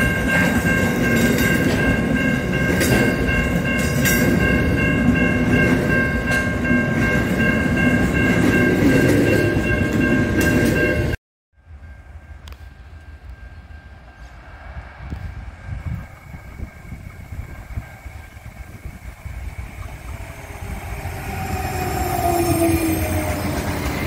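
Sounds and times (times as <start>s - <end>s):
crossing alarm bells ringing: 0.0s - 14.4s
train wagons rumbling past: 0.0s - 24.0s.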